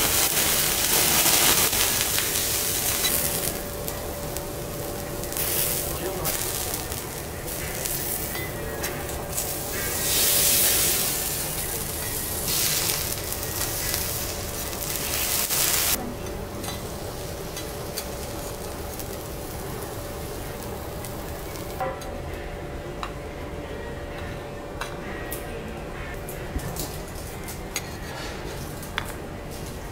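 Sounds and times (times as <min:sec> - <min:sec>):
vegetables sizzling on a griddle: 0:00.0 - 0:16.0, 0:16.6 - 0:21.8.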